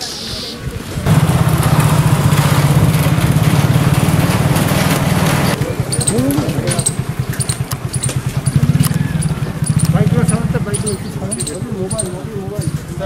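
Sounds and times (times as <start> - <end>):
motorcycle engine drone: 1.0 - 13.0.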